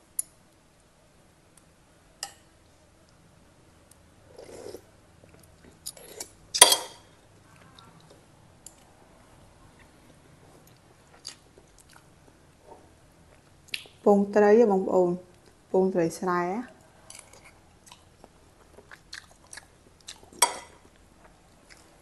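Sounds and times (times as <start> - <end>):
soft chewing: 3.8 - 6.4, 7.2 - 14.0, 16.7 - 22.0.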